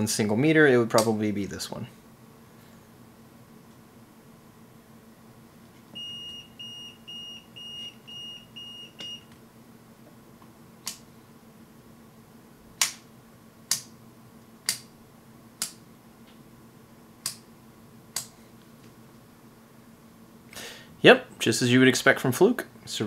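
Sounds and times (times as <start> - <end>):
multimeter short high beeps: 6.0 - 9.3.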